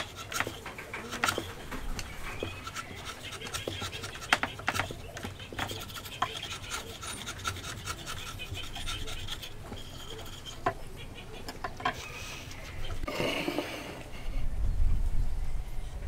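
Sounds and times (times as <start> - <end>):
chisel scraping wood: 0.0 - 14.0.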